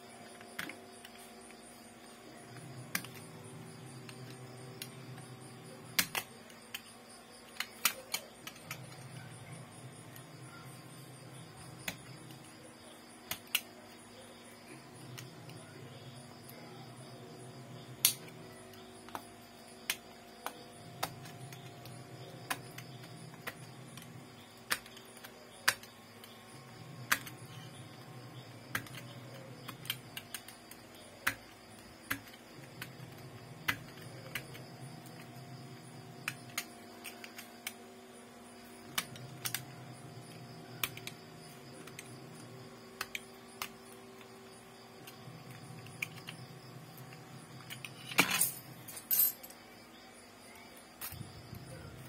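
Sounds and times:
plastic laptop parts clicking: 2.5s - 3.3s, 5.9s - 9.3s, 18.0s - 26.4s, 27.0s - 28.0s, 28.7s - 35.4s, 36.2s - 37.8s, 38.8s - 44.3s, 45.0s - 46.4s.

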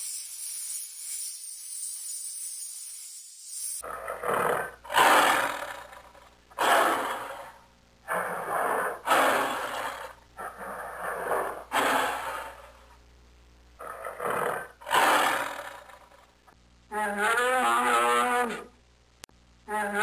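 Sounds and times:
jaguar grunting roars: 3.8s - 12.8s, 13.8s - 16.0s.

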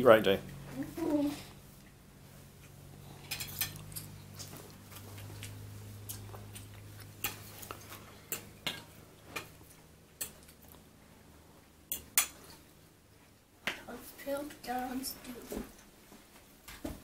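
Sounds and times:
low steady hum: 0.0s - 17.0s
cutlery clinking on plates: 3.2s - 4.4s, 11.9s - 12.6s.

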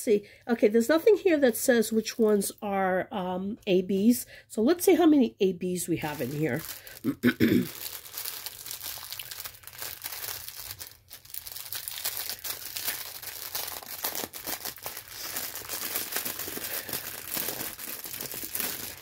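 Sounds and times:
plastic bags crinkling: 6.0s - 19.0s.

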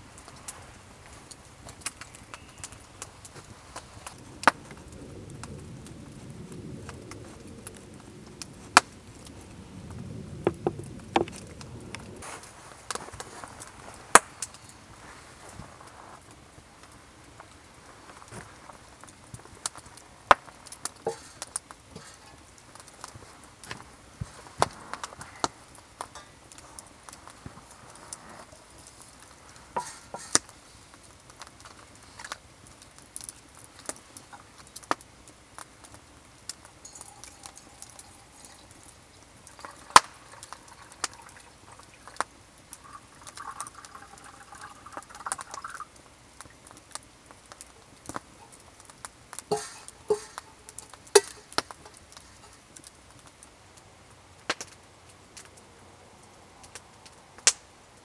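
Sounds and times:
metal pot and cup clinking: 29.8s - 30.3s, 36.8s - 38.8s, 49.5s - 52.5s
water pouring into cup: 36.8s - 38.8s, 39.5s - 42.2s, 42.8s - 45.8s.

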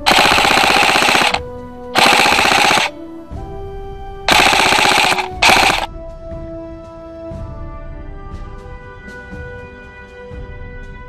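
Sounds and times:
airsoft rifle bursts: 0.0s - 1.4s, 2.0s - 3.0s, 4.3s - 5.9s
background music: 0.0s - 11.0s.

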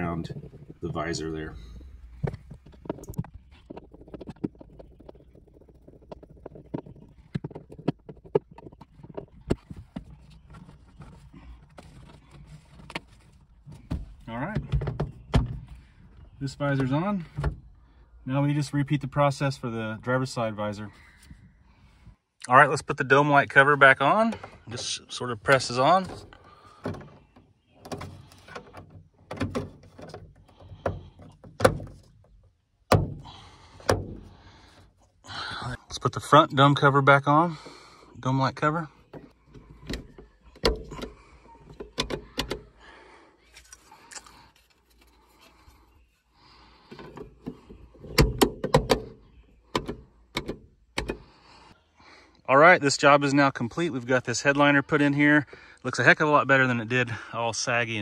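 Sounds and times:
plastic mount being handled: 1.8s - 15.6s.

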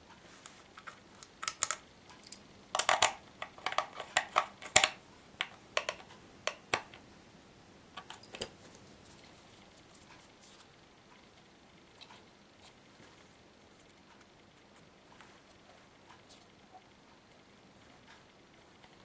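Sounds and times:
metal tool clicking on plastic case: 0.8s - 7.0s.

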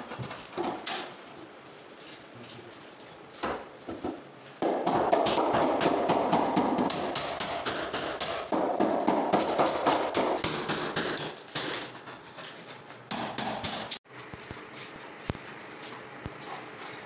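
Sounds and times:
hammer chipping concrete: 4.6s - 11.9s.

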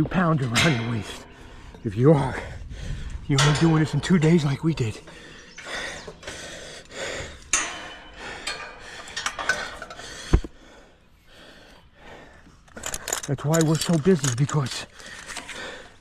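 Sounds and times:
person breathing hard: 2.4s - 3.3s, 5.0s - 13.2s, 14.9s - 16.0s
metal climbing hardware clinking: 3.1s - 10.4s, 12.3s - 16.0s.

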